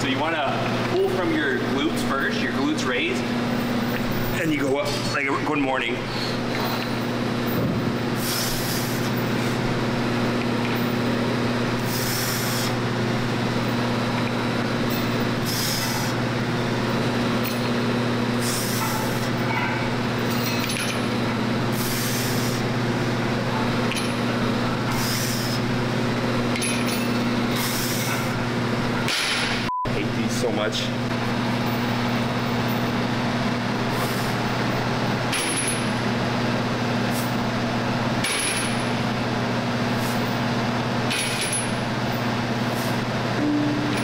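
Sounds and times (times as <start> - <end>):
air handling hum: 0.0 - 44.0.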